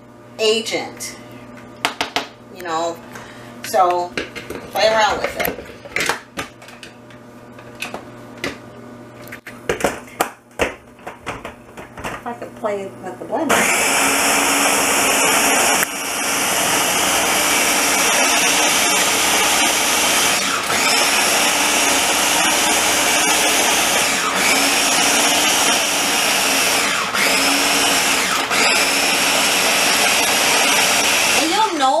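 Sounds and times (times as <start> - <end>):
food chopper motor whirring: 13.5 - 32.0.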